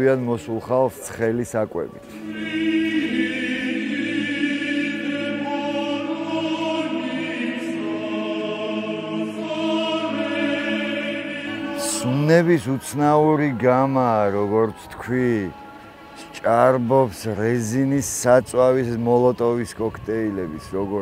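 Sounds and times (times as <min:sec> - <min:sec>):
choir singing long chords: 0:02.0 - 0:20.0.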